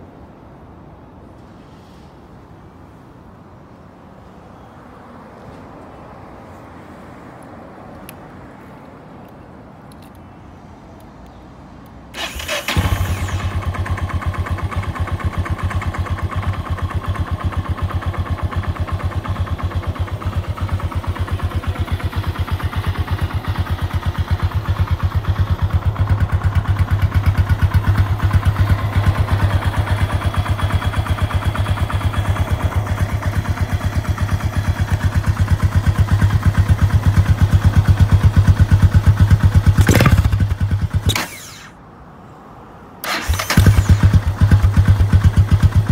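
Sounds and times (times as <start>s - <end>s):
motorcycle engine idling: 12.2s - 41.7s, 43.1s - 45.9s.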